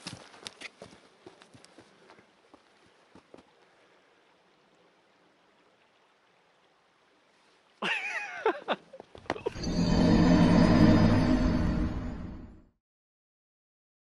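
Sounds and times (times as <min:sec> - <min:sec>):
footsteps on rocks and snow: 0:00.0 - 0:03.5.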